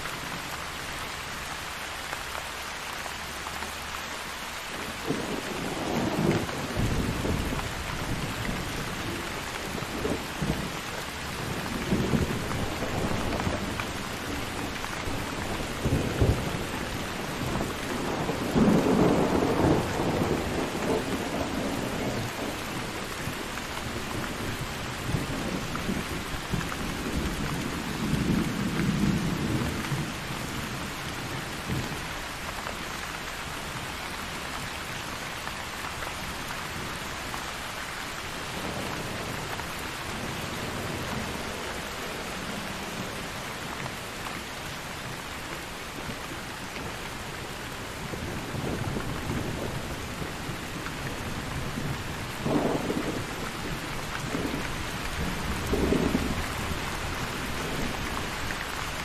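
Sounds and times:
steady rain: 0.0 - 59.0
thunder rumbling: 5.0 - 32.0, 48.0 - 58.9.

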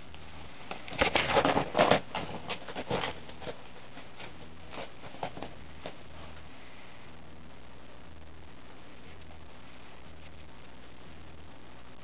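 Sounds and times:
cat claws scratching bag: 0.8 - 5.9.

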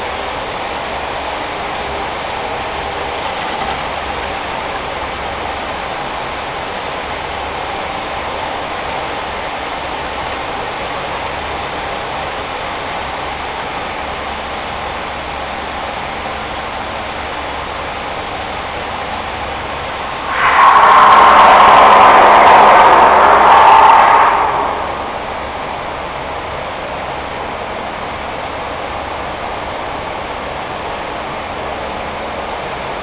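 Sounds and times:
low uneven rumble: 18.8 - 30.4
water rushing in tank: 19.0 - 27.0.

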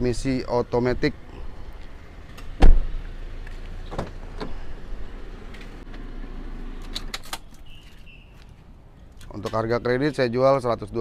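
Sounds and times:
car door thump: 2.6 - 3.0, 3.9 - 4.6.

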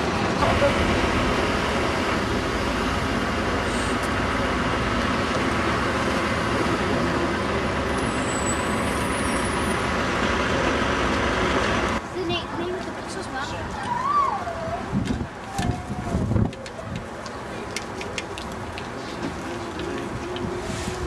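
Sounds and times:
diesel bus running: 0.0 - 13.7
traffic noise: 0.0 - 21.0.

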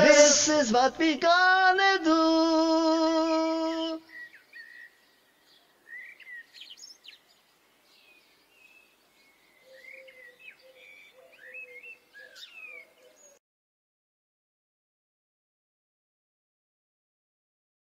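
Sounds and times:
faint birdsong: 1.4 - 13.4.

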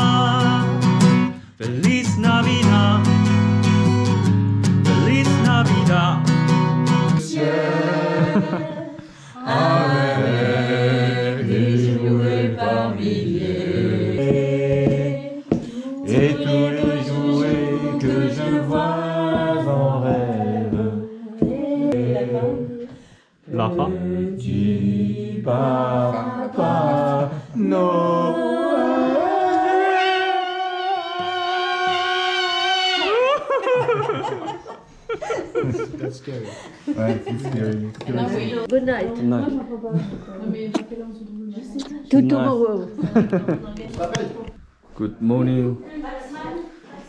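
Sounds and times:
group of people singing: 0.0 - 3.1, 7.0 - 35.9.

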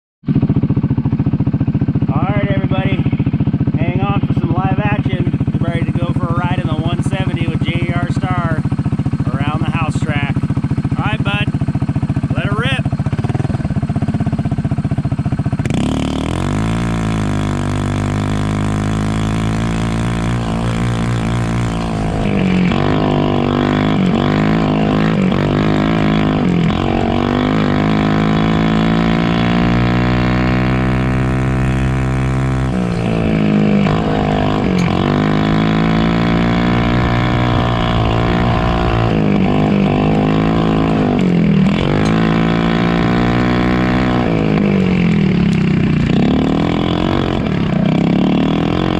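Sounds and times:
small engine revving under load: 15.6 - 48.9.

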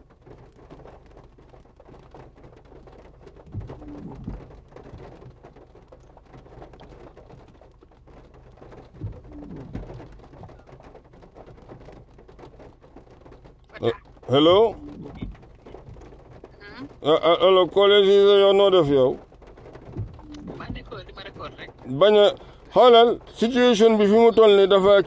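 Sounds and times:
bird cooing: 3.6 - 4.4, 9.0 - 10.0, 14.7 - 15.3, 20.2 - 20.7
low hum: 3.6 - 4.5, 9.0 - 10.6, 20.1 - 20.9.

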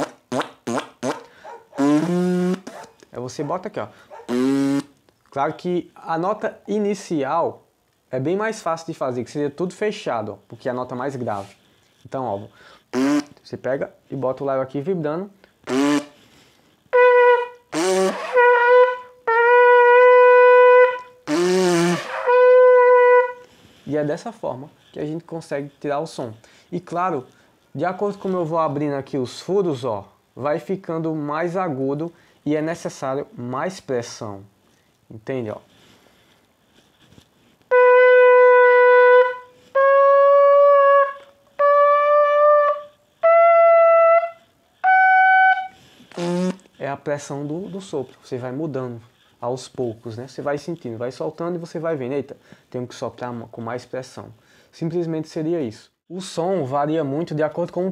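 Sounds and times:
goat horn blown: 0.0 - 2.9, 4.1 - 5.0, 12.9 - 13.3, 15.6 - 16.2, 16.9 - 23.6, 37.7 - 46.7.

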